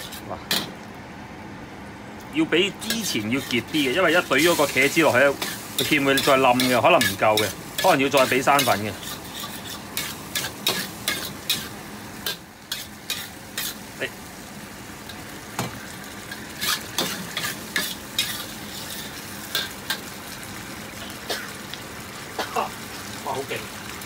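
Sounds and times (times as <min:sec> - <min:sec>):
sauce sizzling in a wok: 0:00.0 - 0:24.0.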